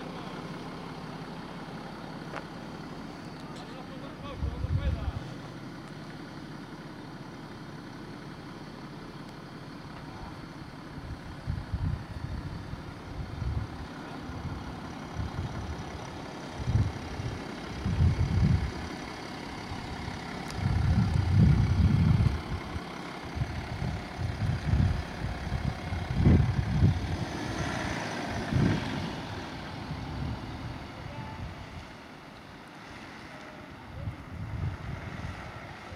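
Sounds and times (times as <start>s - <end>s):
diesel car engine passing: 0.0s - 35.9s
wind buffeting microphone: 11.0s - 16.0s, 16.6s - 18.9s, 20.5s - 27.6s, 33.9s - 35.7s.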